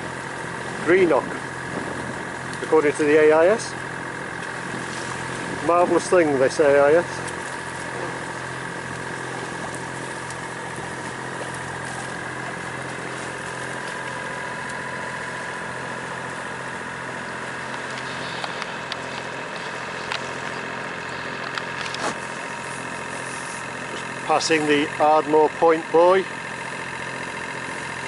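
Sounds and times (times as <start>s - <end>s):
boat engine humming: 0.0s - 28.0s.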